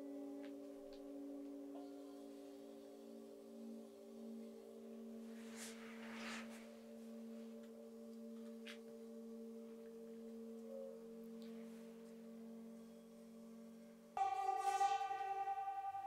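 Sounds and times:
metal singing bowls ringing: 0.0 - 16.0
soft rustle: 5.0 - 10.5.

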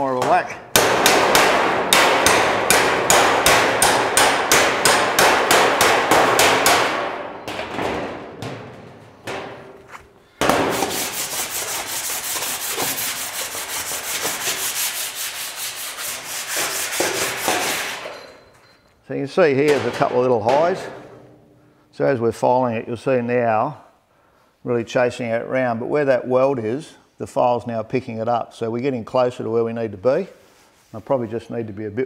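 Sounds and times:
file scraping steel: 10.6 - 18.4.

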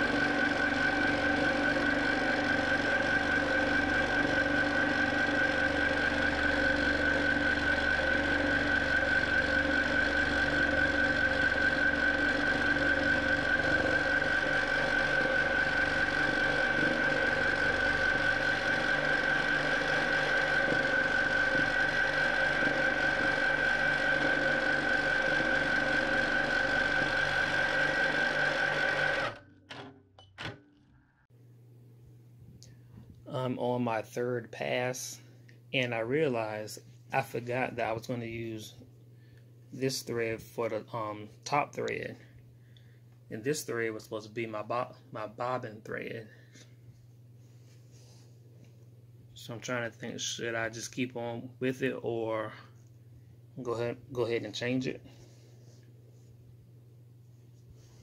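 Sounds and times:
quilting machine stitching: 0.0 - 30.6.

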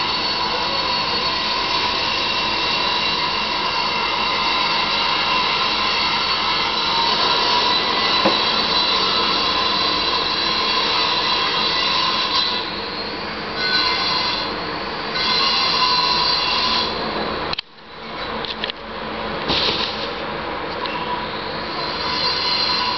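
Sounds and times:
steady mechanical whine: 0.0 - 22.9
hiss: 19.5 - 20.2.

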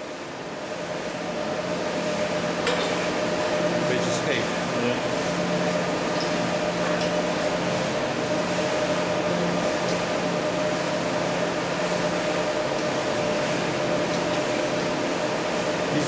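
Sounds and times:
cooling fan hum and hiss: 0.0 - 16.0.

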